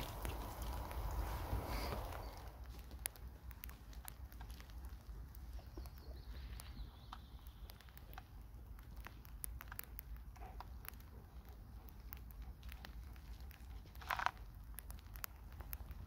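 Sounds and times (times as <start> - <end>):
light clicks and rustles: 0.0 - 16.0.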